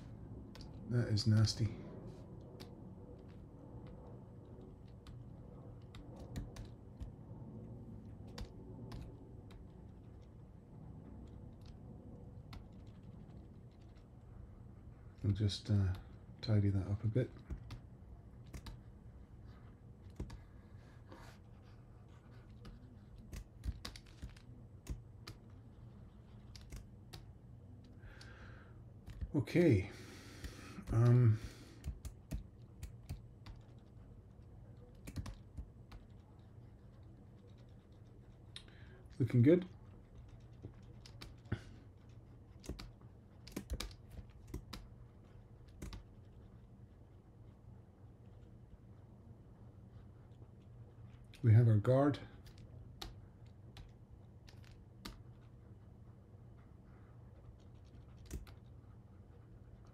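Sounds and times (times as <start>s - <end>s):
low steady hum: 0.0s - 59.9s
keyboard and mouse clicks: 2.4s - 7.2s, 8.0s - 10.3s, 17.4s - 18.8s, 20.0s - 20.6s, 22.4s - 25.6s, 26.2s - 28.3s, 29.0s - 29.4s, 31.8s - 33.9s, 34.8s - 38.8s, 40.0s - 44.9s, 45.6s - 46.5s, 52.4s - 55.5s, 57.6s - 58.8s.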